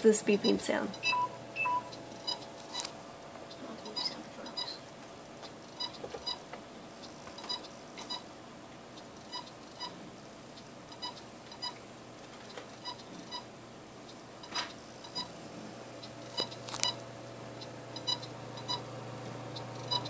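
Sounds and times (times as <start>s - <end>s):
computer fan hum: 0.0s - 20.0s
short high computer beeps: 0.9s - 2.4s, 3.9s - 4.8s.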